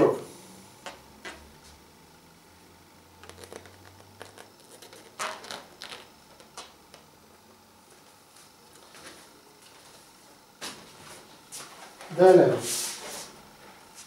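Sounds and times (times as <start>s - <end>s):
balloons rubbing and crinkling: 3.2s - 6.0s.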